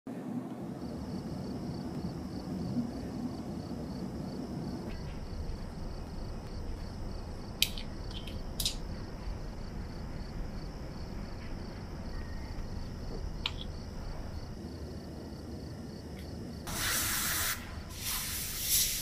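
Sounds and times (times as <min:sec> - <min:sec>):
steady low hum: 0:00.1 - 0:16.7
small metallic clicks: 0:07.6 - 0:08.9
faint high pulsing tone: 0:12.0 - 0:13.1.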